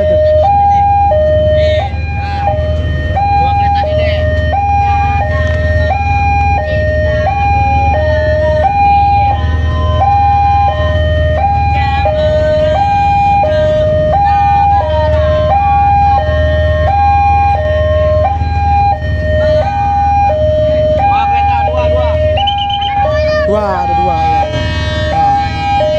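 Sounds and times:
level crossing two-tone alarm: 0.0 - 25.9.

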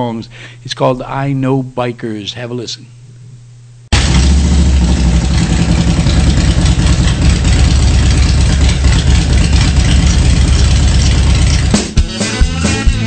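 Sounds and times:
motorcycle engine idling: 3.9 - 11.8.

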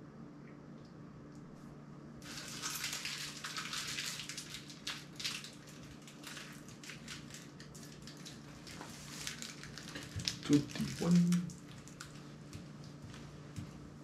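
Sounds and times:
steady low hum: 0.0 - 2.7
crinkly crackling rustle: 2.2 - 13.9.

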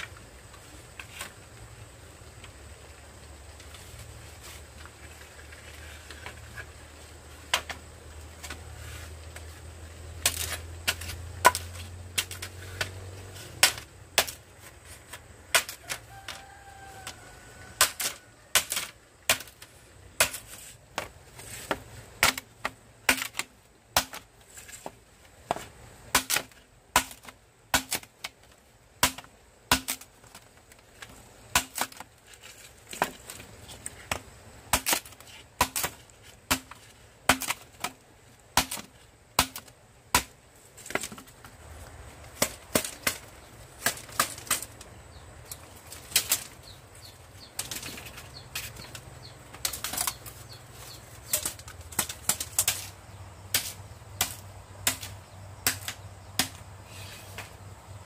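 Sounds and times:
blade chopping bamboo: 10.2 - 41.5, 42.3 - 44.9, 45.9 - 52.9, 53.5 - 57.6.

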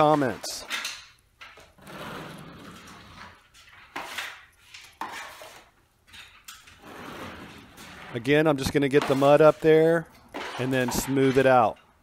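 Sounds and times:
taping knife scraping mud pan: 2.1 - 5.7, 6.8 - 11.7.

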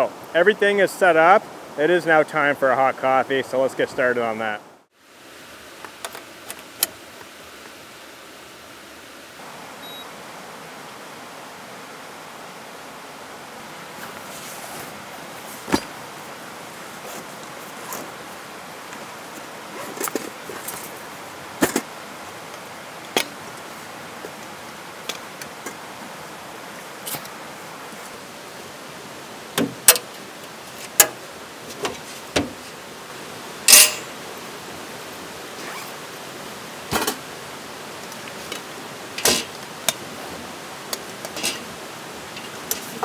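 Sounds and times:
creek rushing over rapids: 0.0 - 43.0
camping gear clinking and knocking: 14.0 - 16.0, 18.9 - 21.0, 21.6 - 21.9, 23.1 - 23.6, 33.7 - 34.1, 36.9 - 37.3, 38.1 - 40.1, 40.9 - 41.7, 42.3 - 43.0.

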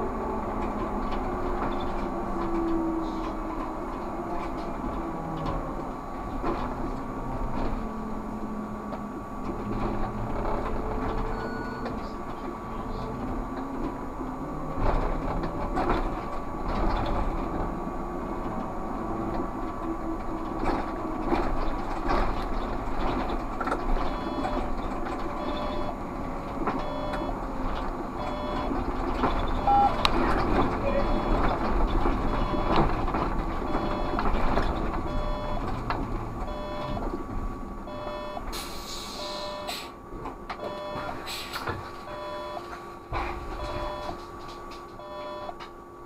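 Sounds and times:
road noise: 0.0 - 46.0
electric drive hum: 25.4 - 26.0, 26.8 - 27.4, 28.1 - 28.7, 33.7 - 34.2, 34.9 - 38.5, 39.2 - 39.7, 40.6 - 41.1, 42.1 - 42.6, 43.6 - 44.2, 45.0 - 45.6.

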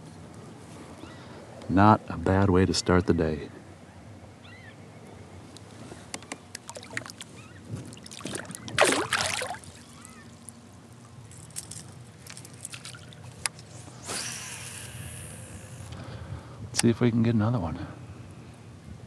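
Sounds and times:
water splashing: 6.6 - 10.5.

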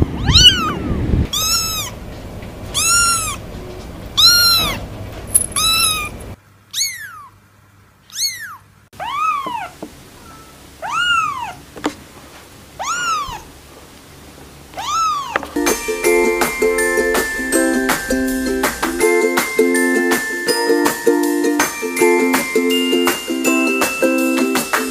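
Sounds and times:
kittens meowing: 0.0 - 2.0, 2.7 - 3.4, 4.2 - 4.8, 5.6 - 7.4, 8.1 - 11.6, 12.8 - 13.5, 14.8 - 15.4
light music: 15.6 - 24.9.

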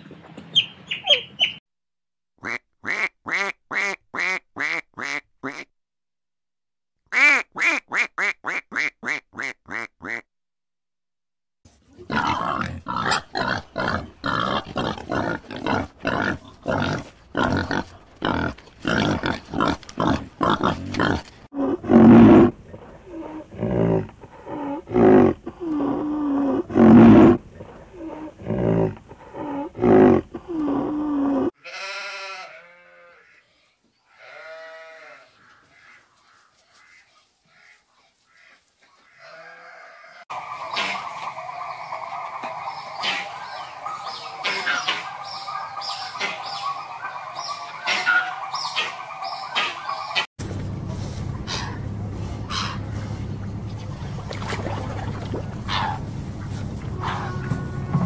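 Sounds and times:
pigs grunting: 12.0 - 31.6, 51.4 - 58.0
faint bleat-like calls: 31.6 - 36.0, 36.7 - 40.2.

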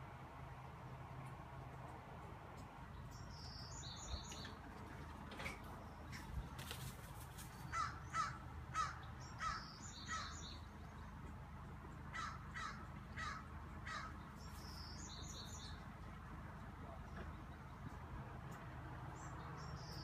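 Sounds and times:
harsh cawing calls: 7.7 - 10.4, 12.1 - 14.2.

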